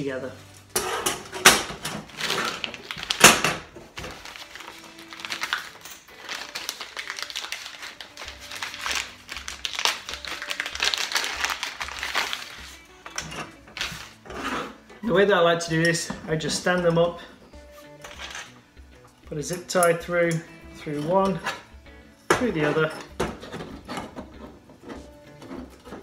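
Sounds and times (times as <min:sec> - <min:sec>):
plastic packet crinkling: 0:02.0 - 0:03.4, 0:04.0 - 0:12.8.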